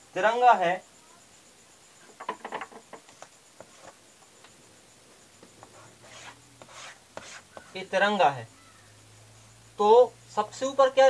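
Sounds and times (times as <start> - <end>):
chalk scraping strokes: 3.6 - 4.0, 5.6 - 7.8
chalk tapping on blackboard: 5.6 - 7.8.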